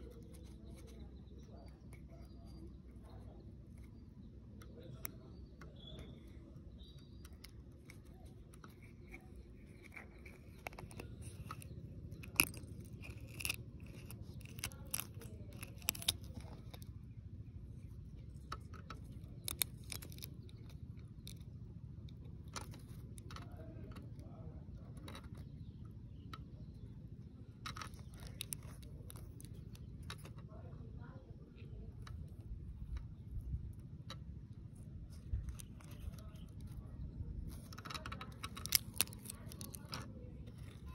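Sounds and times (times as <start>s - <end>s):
eggshell cracking and peeling: 3.7s - 17.0s, 17.6s - 25.5s, 27.5s - 30.5s, 31.9s - 40.9s.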